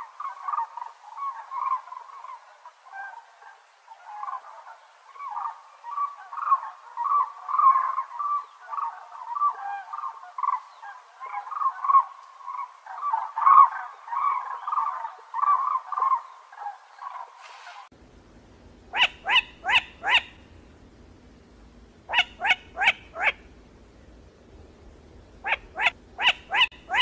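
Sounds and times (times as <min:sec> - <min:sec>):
cranes calling: 0:04.0 - 0:17.9, 0:18.9 - 0:20.7, 0:22.1 - 0:23.5, 0:25.4 - 0:27.0.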